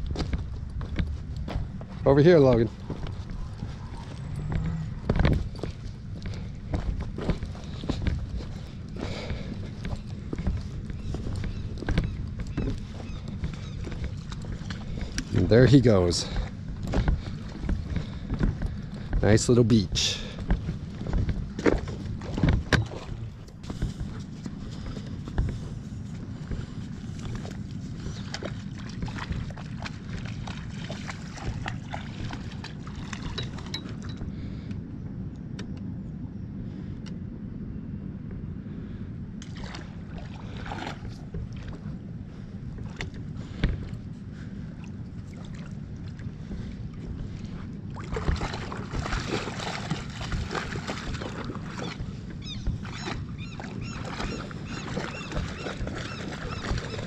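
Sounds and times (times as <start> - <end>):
low steady rumble: 0.0 - 57.0
dog splashing through water: 27.3 - 33.7, 39.5 - 41.3, 48.0 - 57.0.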